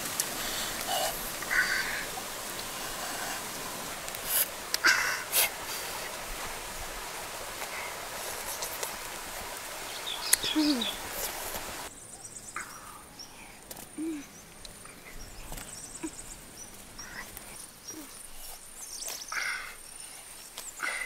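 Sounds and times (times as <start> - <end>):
outdoor background hiss: 0.0 - 21.0.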